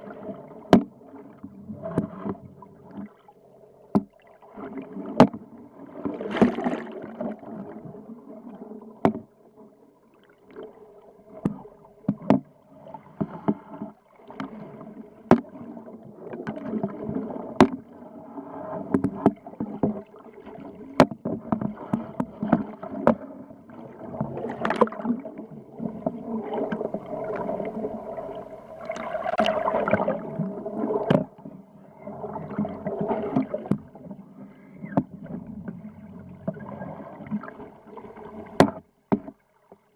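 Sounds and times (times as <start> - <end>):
water swirling and gurgling: 0.0 - 39.9.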